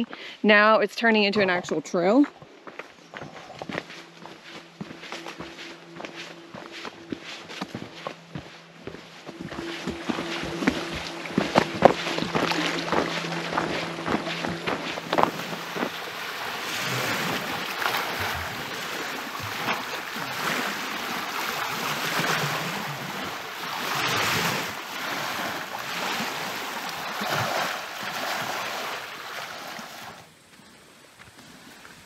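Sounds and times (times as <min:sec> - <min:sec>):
waves washing onto gravel shore: 0:09.6 - 0:30.2.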